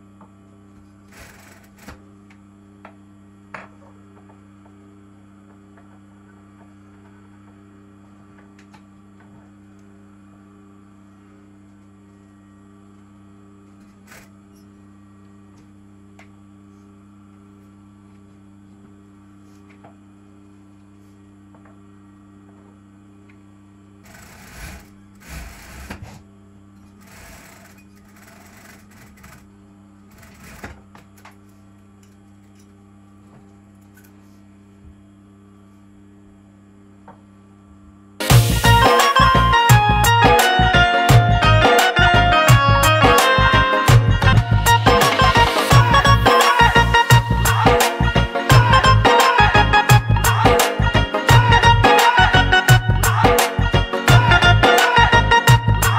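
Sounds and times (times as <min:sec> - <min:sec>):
sewing machine motor humming: 0:01.1 - 0:02.0, 0:24.0 - 0:26.2, 0:26.9 - 0:30.8, 0:43.9 - 0:50.6
sewing machine stitching: 0:01.1 - 0:02.0, 0:24.0 - 0:26.1, 0:27.0 - 0:29.5, 0:30.1 - 0:30.8.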